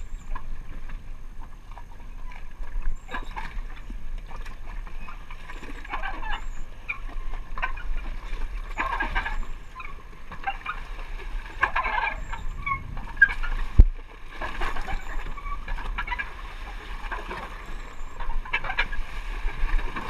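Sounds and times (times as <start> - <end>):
water slapping against a hull: 0.0 - 20.0
low rumble: 11.3 - 15.8.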